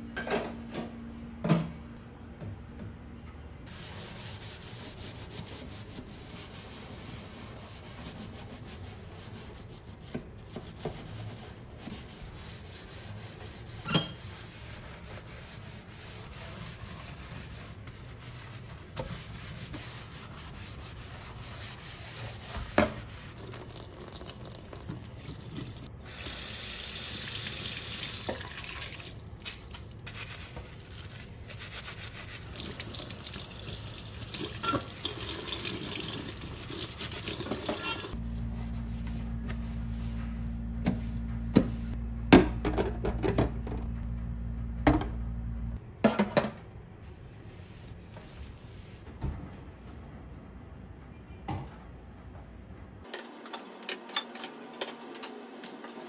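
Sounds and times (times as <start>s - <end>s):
sponge scrubbing steel sink: 3.7s - 23.8s, 30.1s - 39.0s.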